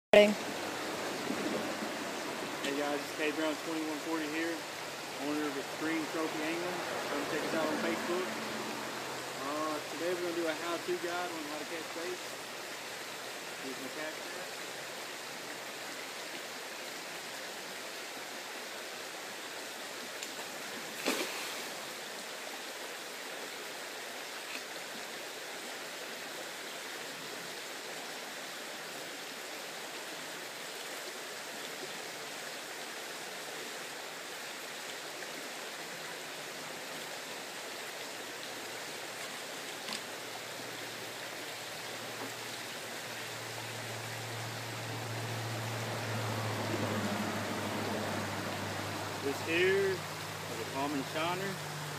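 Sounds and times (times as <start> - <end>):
shallow creek running: 0.1 - 51.9
sharp splash: 20.8 - 22.0.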